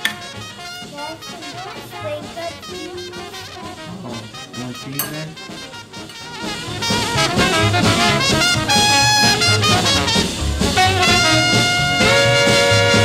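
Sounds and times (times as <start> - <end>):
swing music with brass: 0.0 - 13.0.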